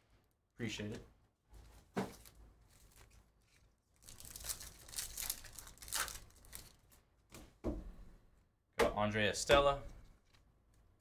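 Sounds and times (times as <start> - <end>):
foil wrapper tearing and crinkling: 2.7 - 7.0.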